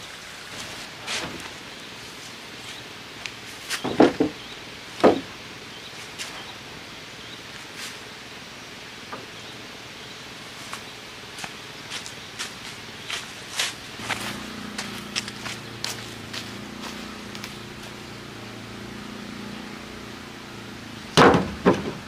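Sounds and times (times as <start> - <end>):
wooden planks knocking: 3.7 - 4.4, 5.0 - 5.3, 21.2 - 22.0.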